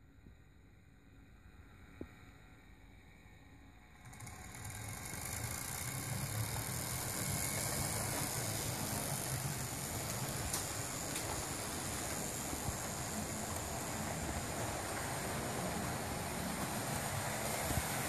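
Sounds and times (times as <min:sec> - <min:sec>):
model train running on track: 0:03.8 - 0:18.0.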